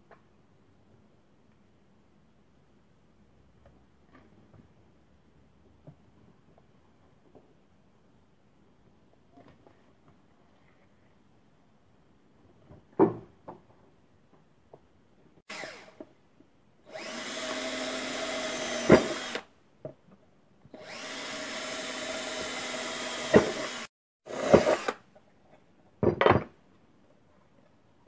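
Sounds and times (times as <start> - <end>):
power drill boring into metal: 15.5 - 16.0, 16.9 - 19.5, 20.8 - 25.0.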